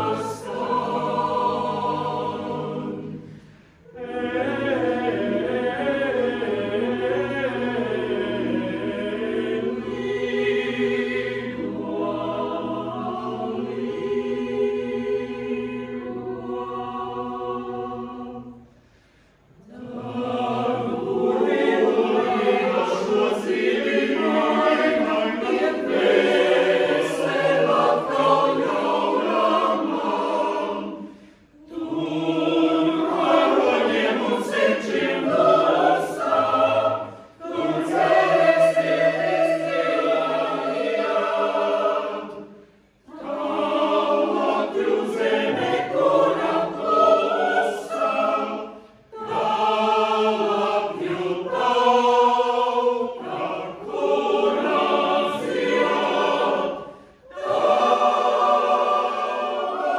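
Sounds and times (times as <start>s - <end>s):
mixed choir singing: 0.0s - 59.9s.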